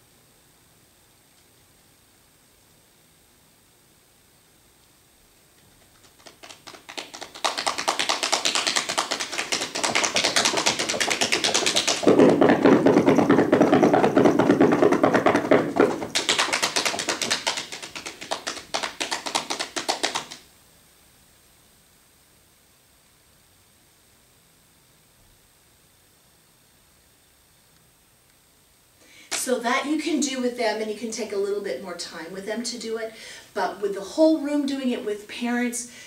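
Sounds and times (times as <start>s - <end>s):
hands rubbing and patting: 5.6s - 20.4s
feet drumming on carpeted floor: 5.8s - 20.4s.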